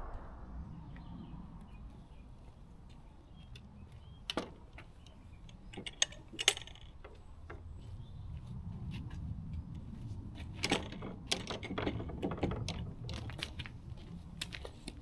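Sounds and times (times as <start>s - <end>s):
wind buffeting microphone: 0.0s - 4.2s.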